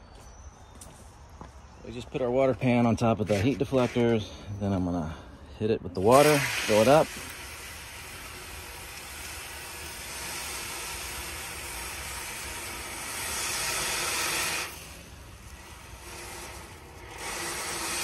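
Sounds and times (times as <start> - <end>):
hose water splashing into foil pan: 6.0 - 18.0.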